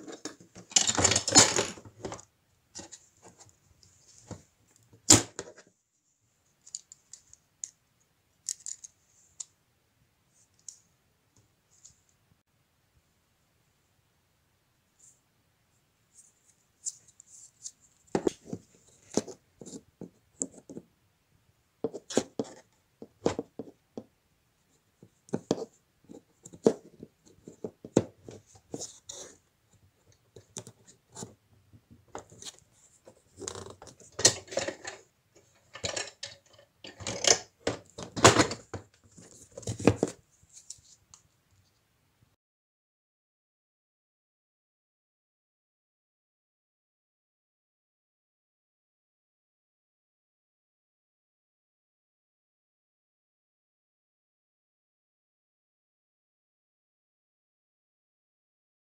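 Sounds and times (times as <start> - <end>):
plastic toy parts clicking and scraping: 0.0 - 3.0, 8.4 - 9.5, 32.2 - 40.1.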